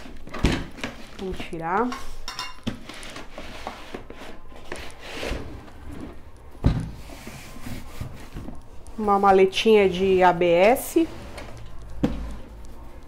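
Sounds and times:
cardboard scraping and rustling: 0:02.8 - 0:06.3.

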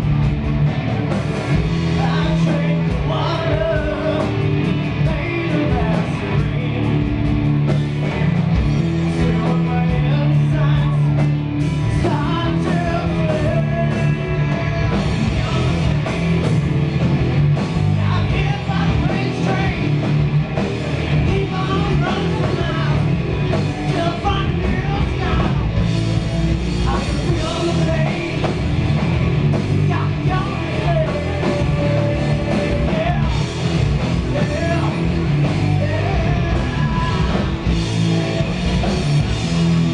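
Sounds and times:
bass guitar: 0:00.0 - 0:39.9
distorted electric guitars: 0:00.0 - 0:39.9
drums: 0:00.0 - 0:39.9
person singing: 0:01.9 - 0:07.1, 0:12.0 - 0:16.1, 0:26.9 - 0:28.7, 0:29.8 - 0:33.5, 0:34.2 - 0:37.7.

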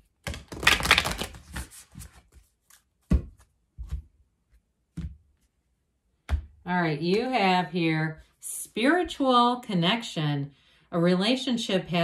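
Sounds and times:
cards shuffling: 0:00.1 - 0:03.5.

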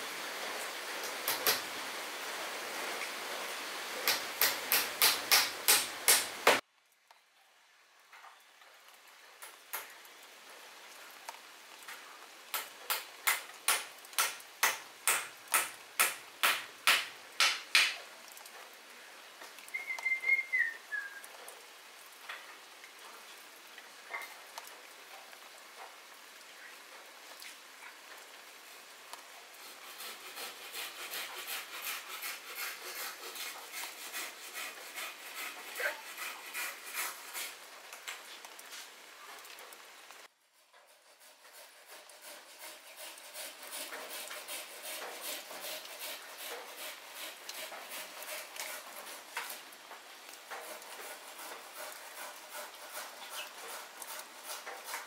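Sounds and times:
hand tool tapping: 0:04.1 - 0:06.6.

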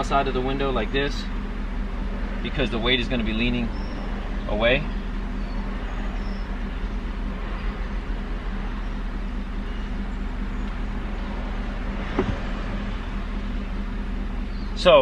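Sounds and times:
car engine hum inside cabin: 0:00.0 - 0:15.0
faint knock: 0:12.0 - 0:12.6.

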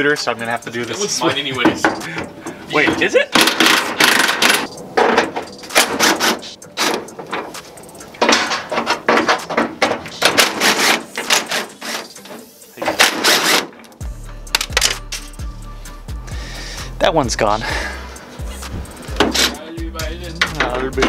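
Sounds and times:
impact driver hammering: 0:03.4 - 0:07.0.

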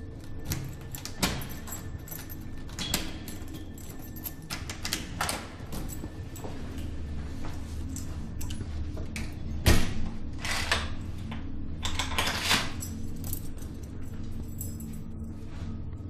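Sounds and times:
low steady hum: 0:00.0 - 0:16.0
door lock and handle rattling: 0:00.2 - 0:06.1.

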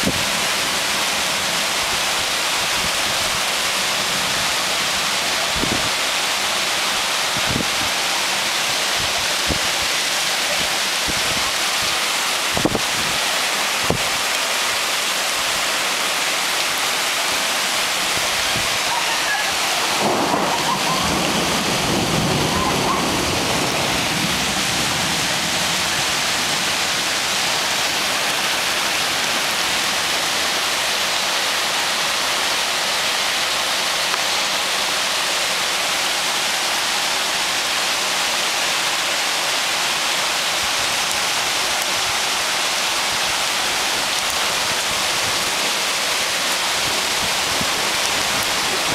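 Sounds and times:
torrential rain hiss: 0:00.0 - 0:48.9.

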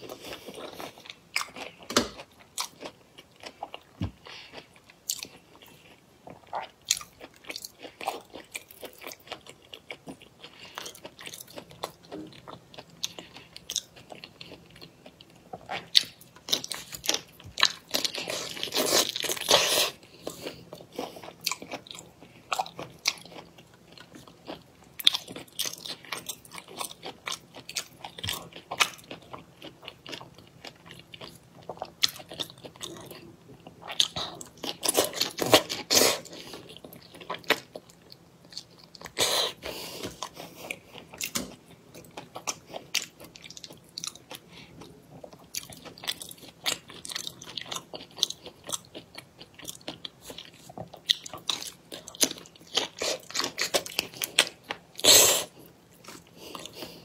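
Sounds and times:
person chewing and smacking: 0:00.0 - 0:57.0.

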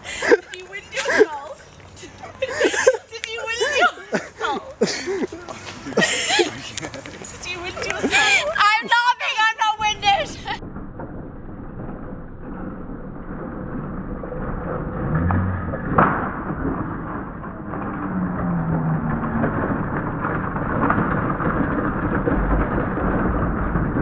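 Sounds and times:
trolley wheels rumbling on asphalt: 0:00.0 - 0:24.0
sharp crack: 0:10.5 - 0:24.0.

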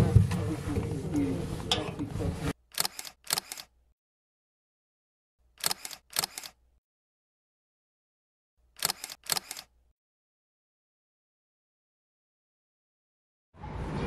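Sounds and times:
camera shutter clicks: 0:02.7 - 0:03.7, 0:05.6 - 0:06.6, 0:08.8 - 0:09.7.

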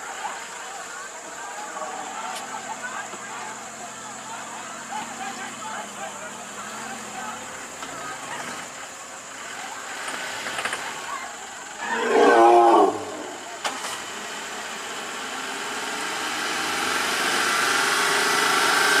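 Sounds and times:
vehicle engine running: 0:00.0 - 0:12.1
elephant trumpeting: 0:11.8 - 0:13.6.

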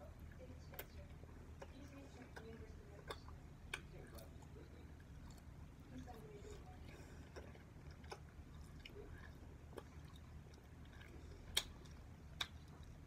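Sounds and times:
person chewing soft candy: 0:00.0 - 0:13.0
wet mouth clicks: 0:07.4 - 0:13.0.

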